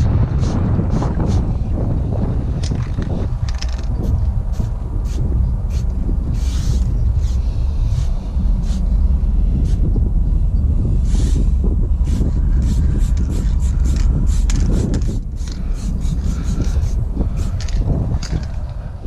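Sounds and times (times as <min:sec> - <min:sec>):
low rumble: 0:00.0 - 0:19.0
spray can hissing: 0:04.0 - 0:08.9, 0:11.0 - 0:17.6.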